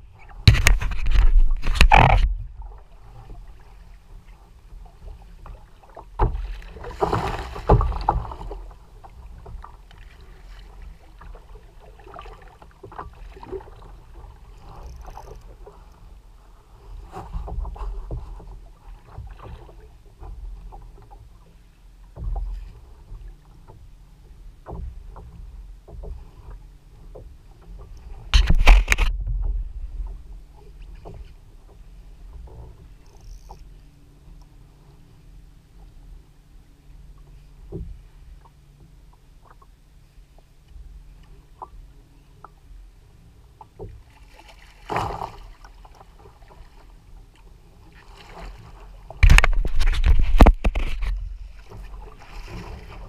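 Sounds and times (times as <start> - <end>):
water slapping kayak hull: 0.0 - 53.0
small splashes: 5.5 - 14.0, 44.0 - 46.9.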